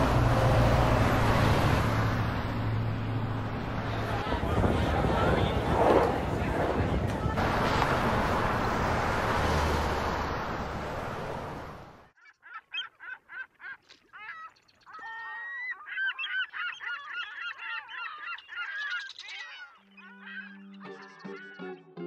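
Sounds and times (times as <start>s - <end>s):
birds honking: 12.2s - 21.9s.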